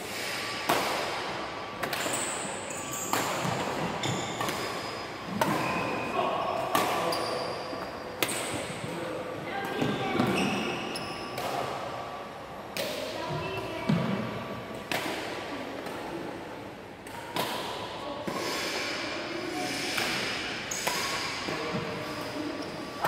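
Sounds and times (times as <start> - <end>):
rackets hitting shuttlecock: 0.6 - 6.0, 6.6 - 8.9, 13.9 - 16.2, 17.0 - 18.5, 19.9 - 22.3.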